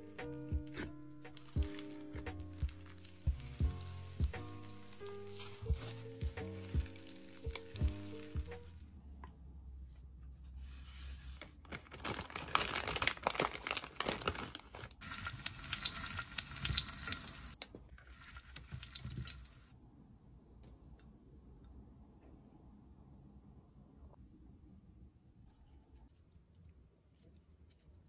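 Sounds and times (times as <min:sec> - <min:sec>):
plastic wrapper crinkling: 0:00.0 - 0:08.8, 0:11.3 - 0:19.7.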